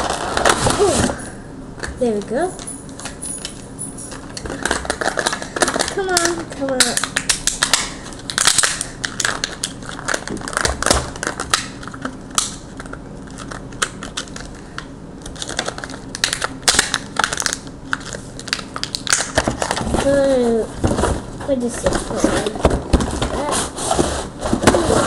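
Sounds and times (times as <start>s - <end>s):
plastic crackling and clicking: 4.1s - 19.8s.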